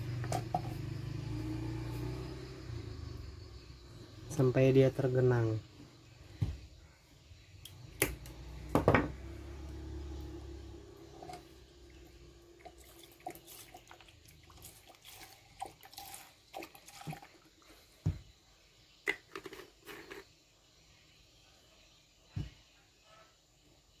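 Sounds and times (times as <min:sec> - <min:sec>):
small drips: 0:11.3 - 0:17.8
liquid pouring and splashing: 0:12.6 - 0:17.7.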